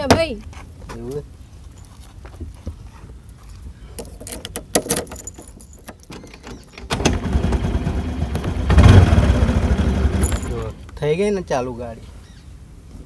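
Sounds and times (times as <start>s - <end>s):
key rattles and clicks: 4.0s - 6.8s
scooter engine running: 6.9s - 10.8s.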